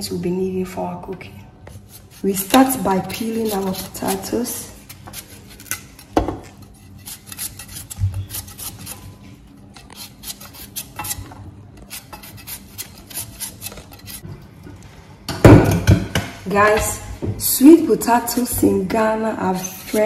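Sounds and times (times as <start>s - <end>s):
knife scraping peel: 1.6s - 14.2s, 19.4s - 20.0s.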